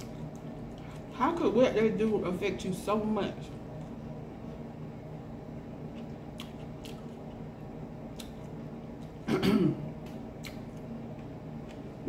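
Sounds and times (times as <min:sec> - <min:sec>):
steady low hum: 0:00.0 - 0:12.0
wet chewing clicks: 0:05.9 - 0:07.4, 0:08.1 - 0:09.2, 0:10.0 - 0:11.8.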